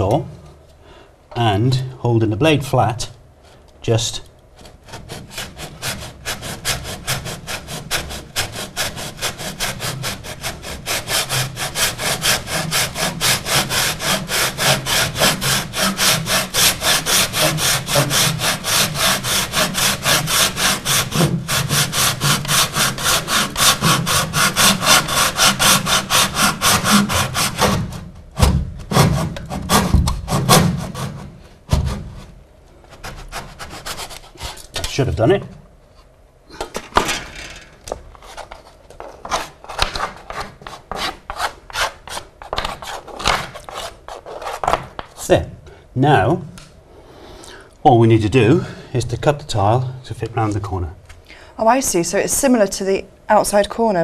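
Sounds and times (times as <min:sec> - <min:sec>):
handsaw cutting wood: 0:04.8 - 0:28.1, 0:28.9 - 0:32.1
loud knocks: 0:25.6 - 0:32.1.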